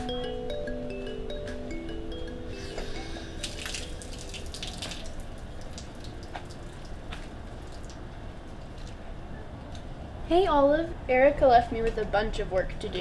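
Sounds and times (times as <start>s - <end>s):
steady low background noise: 0.0s - 13.0s
small drips and clicks: 3.4s - 9.0s.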